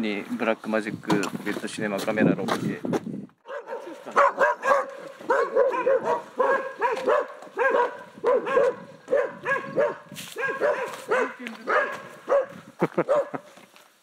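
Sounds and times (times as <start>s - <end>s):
dog barking: 3.4s - 13.5s.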